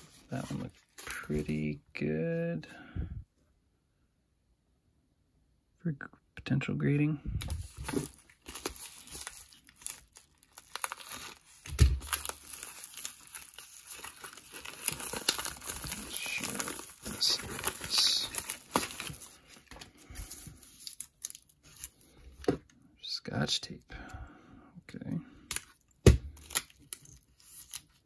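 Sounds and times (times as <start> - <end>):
plastic mailer crinkling and tearing: 7.5 - 22.1, 25.5 - 28.0.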